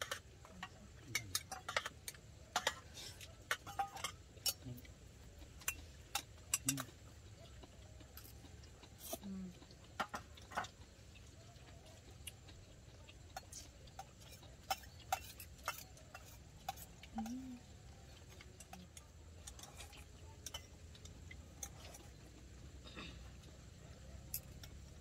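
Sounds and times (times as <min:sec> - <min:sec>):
utensils clicking on plates: 0:00.0 - 0:04.8, 0:13.2 - 0:22.3
person humming: 0:17.1 - 0:17.7.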